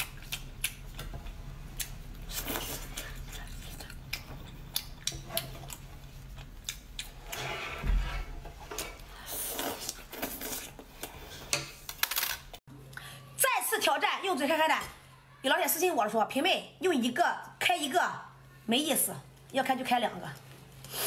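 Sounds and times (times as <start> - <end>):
wet chewing and lip smacking: 0.0 - 7.3.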